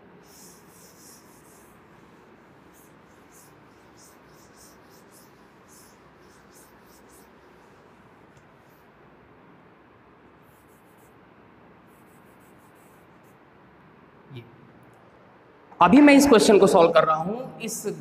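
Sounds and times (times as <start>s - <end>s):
duster rubbing chalkboard: 0.1s - 8.7s.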